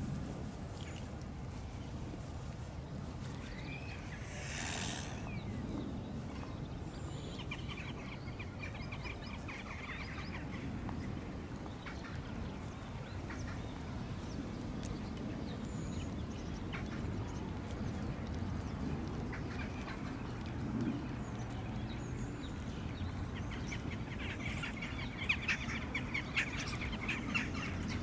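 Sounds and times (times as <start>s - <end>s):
steady low rumble: 0.0s - 7.1s.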